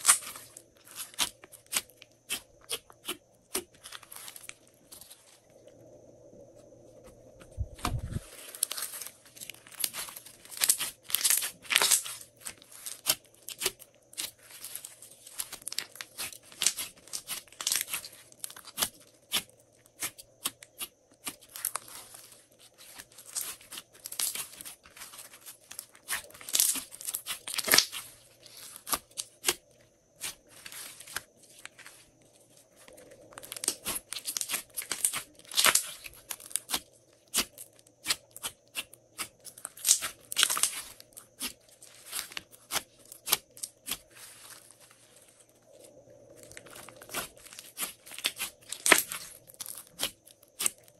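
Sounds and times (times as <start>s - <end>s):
slime popping and crackling: 7.9s - 22.1s, 22.8s - 29.6s, 33.4s - 44.2s, 46.5s - 50.8s.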